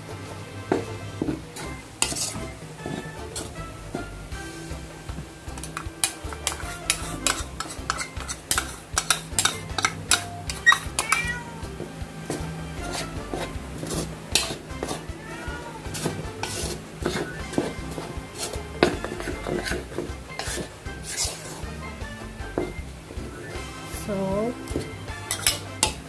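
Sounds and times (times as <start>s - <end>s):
spoon stirring in ceramic bowl: 0.7s - 4.1s, 5.2s - 11.4s, 12.2s - 15.2s, 15.9s - 21.8s, 24.6s - 26.0s.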